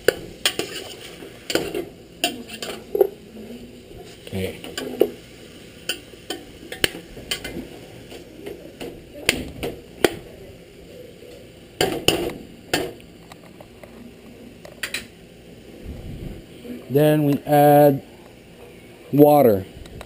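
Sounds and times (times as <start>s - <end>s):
metal spoon scraping pot: 0.4s - 2.8s.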